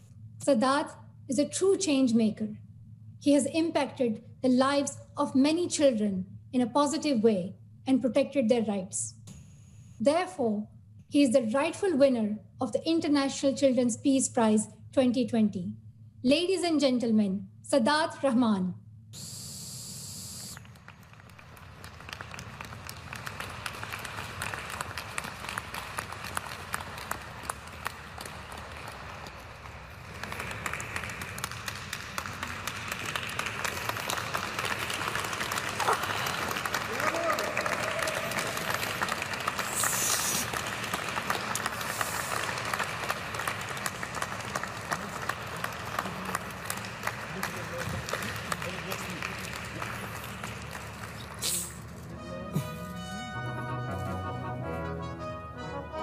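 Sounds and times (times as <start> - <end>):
people applauding: 19.9 - 52.0
brief high hiss: 39.7 - 40.5, 51.4 - 51.8.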